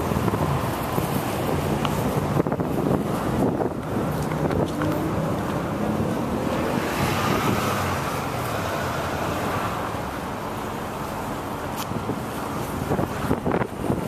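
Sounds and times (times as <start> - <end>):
wind buffeting microphone: 0.0 - 8.7, 11.9 - 14.0
road traffic rushing: 0.0 - 14.0.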